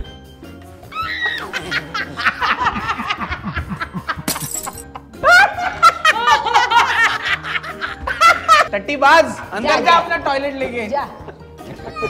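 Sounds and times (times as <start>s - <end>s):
background music: 0.0s - 12.0s
people laughing hard: 1.0s - 8.7s, 11.2s - 12.0s.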